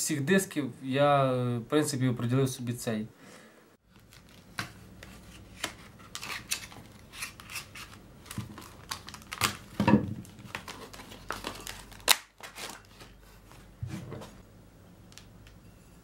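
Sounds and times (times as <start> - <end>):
plastic packaging being cut and crinkled: 3.9 - 13.6
plastic snapping: 11.4 - 12.6.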